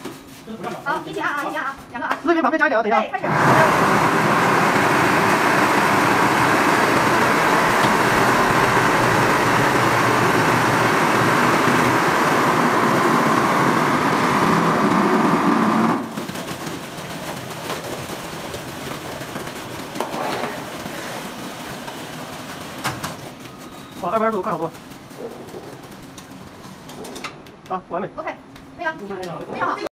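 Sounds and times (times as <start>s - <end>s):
quiet running machine: 0.0s - 29.9s
plastering machine motors: 3.2s - 26.5s.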